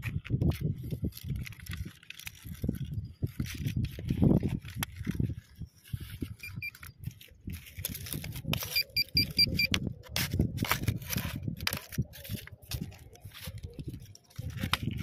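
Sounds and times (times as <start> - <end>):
soil and stones crunching: 0.0 - 15.0
metal detector short high beeps: 6.4 - 6.9, 8.6 - 9.8.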